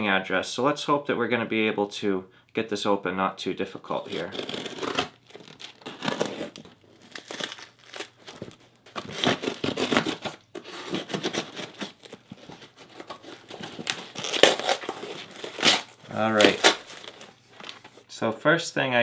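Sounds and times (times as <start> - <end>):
tape and cardboard ripping: 3.9 - 18.0.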